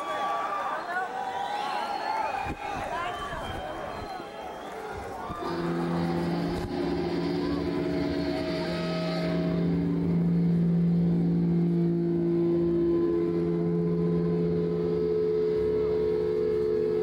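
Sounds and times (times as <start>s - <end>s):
electric guitar droning notes: 5.3s - 17.0s.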